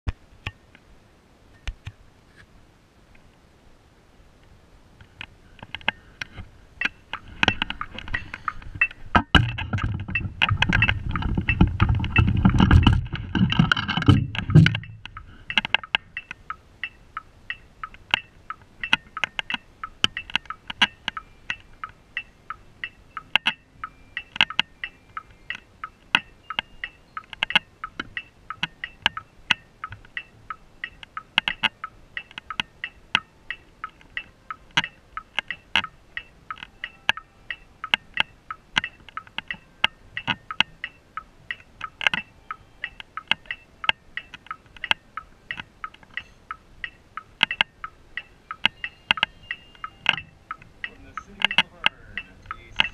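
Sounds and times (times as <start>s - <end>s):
sharp ticks: 5.0s - 52.9s
drums rumbling and rattling: 7.2s - 15.4s.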